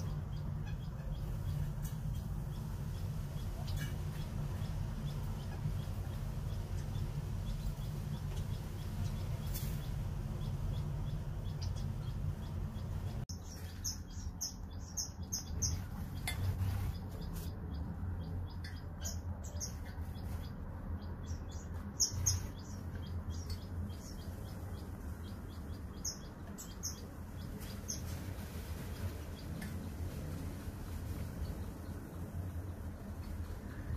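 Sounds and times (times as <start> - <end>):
quails chirping: 0.0 - 33.6
low background hum: 0.0 - 33.9.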